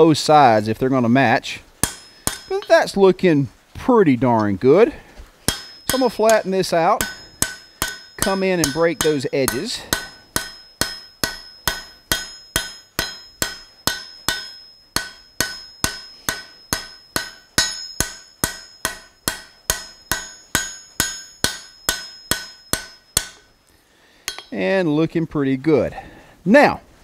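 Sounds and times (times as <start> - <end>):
hammer ringing on anvil: 1.8 - 2.9, 5.5 - 23.5, 24.3 - 24.6.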